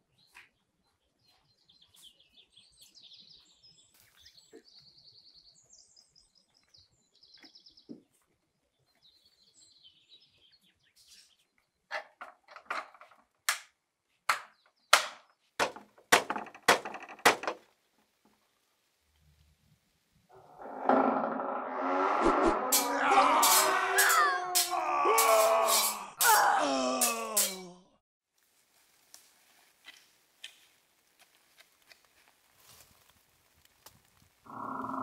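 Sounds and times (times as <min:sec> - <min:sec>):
small birds chirping: 0:00.0 - 0:12.0
fist knocking on iron door: 0:15.6 - 0:17.6.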